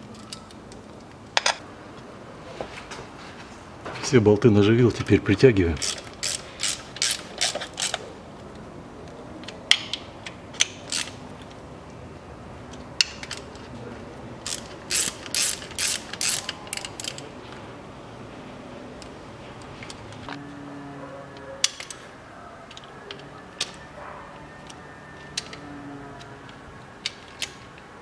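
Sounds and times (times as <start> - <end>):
socket ratchet clicking: 5.8 - 8.0, 10.6 - 11.2, 14.4 - 17.2.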